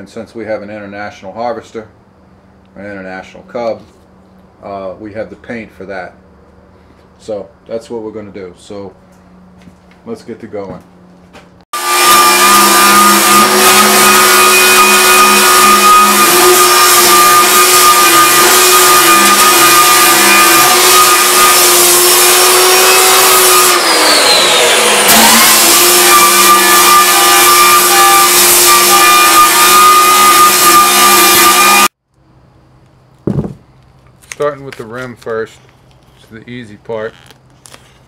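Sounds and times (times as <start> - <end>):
power tool motor whining: 11.8 - 32.0.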